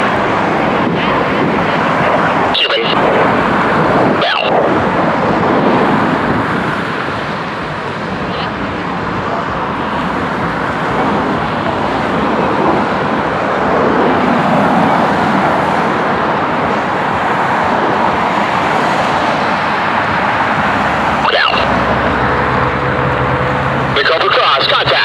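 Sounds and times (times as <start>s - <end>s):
jet aircraft roar: 0.0s - 25.0s
radio scanner squelch tone: 2.5s - 3.1s, 4.2s - 4.7s, 21.2s - 21.8s.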